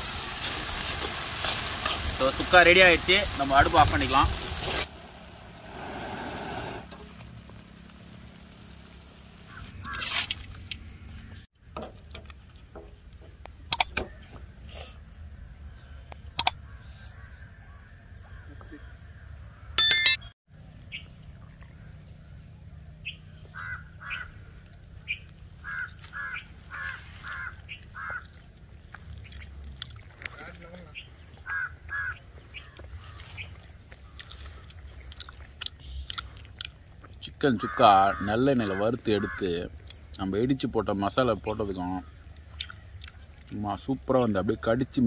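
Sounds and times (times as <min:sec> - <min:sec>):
frying sizzle: 0:00.0 - 0:10.3
knocks and clinks: 0:19.8 - 0:20.2.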